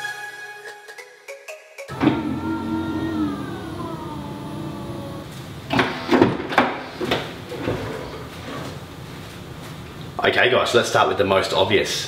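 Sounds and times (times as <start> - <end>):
tailgate motor whine: 1.9 - 9.0.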